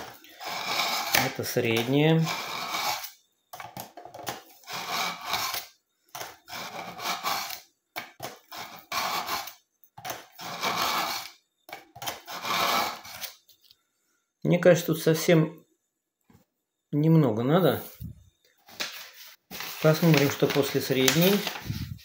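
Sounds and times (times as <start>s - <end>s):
knife scraping through sharpener: 0.0s - 3.2s, 4.6s - 7.6s, 8.2s - 11.4s, 12.0s - 13.4s.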